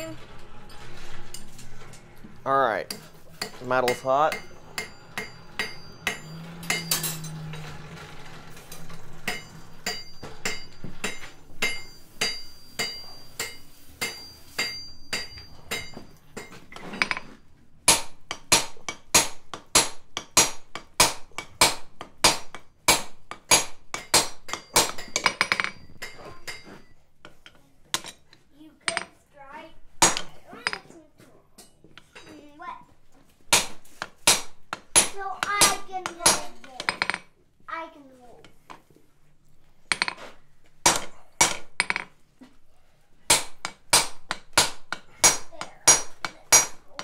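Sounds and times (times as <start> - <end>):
hammer clinking on anvil: 2.9 - 7.6, 8.8 - 17.3, 17.9 - 28.2, 43.3 - 47.0.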